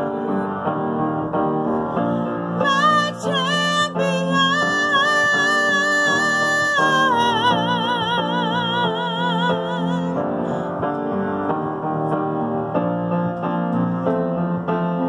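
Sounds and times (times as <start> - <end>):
keyboard chords: 0.0 - 15.0
woman singing with vibrato: 2.6 - 10.3.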